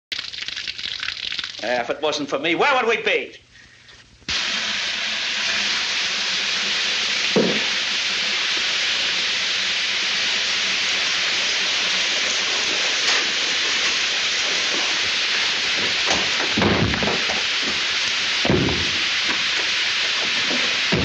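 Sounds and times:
water spraying with a hiss: 4.3s - 21.0s.

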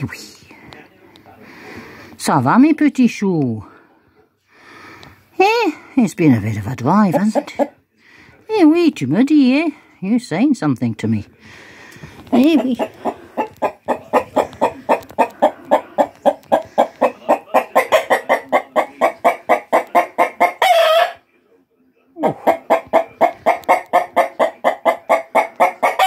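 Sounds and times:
cockerels clucking: 6.8s - 7.9s, 11.5s - 21.3s, 22.2s - 26.0s.

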